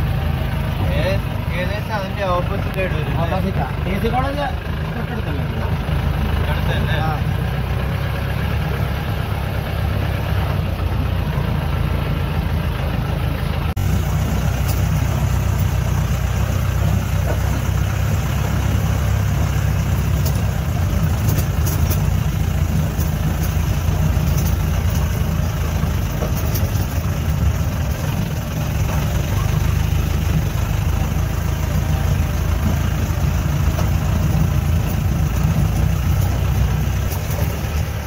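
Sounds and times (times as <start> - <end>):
car engine running: 0.0 - 38.0
clicks and rattles: 19.4 - 28.2, 32.3 - 38.0.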